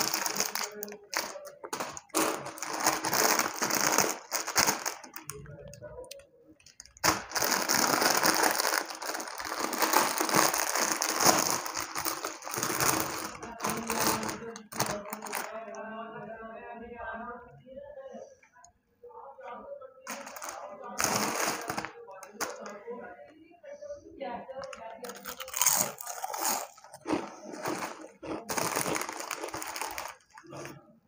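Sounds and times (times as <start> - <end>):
snack packet crinkling: 0.0 - 15.8, 20.1 - 22.8, 24.6 - 30.8.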